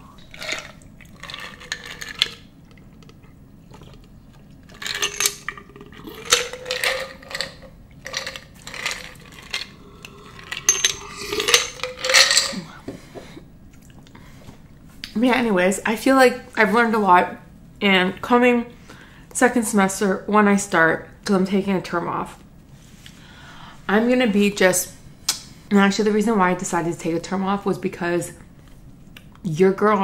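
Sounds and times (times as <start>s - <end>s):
ice cubes clinking in glass jar: 0.2s - 2.4s, 4.7s - 12.7s.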